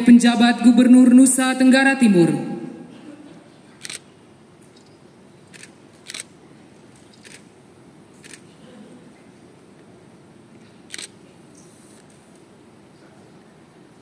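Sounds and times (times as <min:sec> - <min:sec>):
low hum of a hall: 0:00.0 - 0:14.0
camera shutters clicking: 0:03.8 - 0:07.5, 0:08.2 - 0:08.5, 0:10.9 - 0:12.2.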